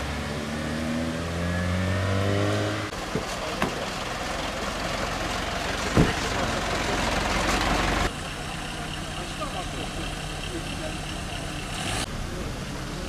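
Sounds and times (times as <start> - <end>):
car engine accelerating: 0.0 - 13.0
steady engine hum: 2.7 - 13.0.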